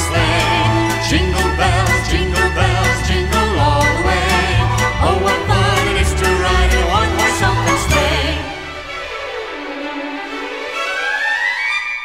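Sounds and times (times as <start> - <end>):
upbeat christmas song with singing: 0.0 - 9.2.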